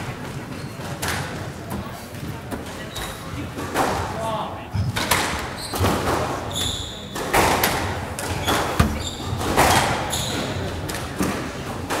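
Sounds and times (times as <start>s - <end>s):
shoes squeaking on hardwood floor: 8.4s - 9.4s
squash ball cracking off racquets: 8.6s - 9.6s.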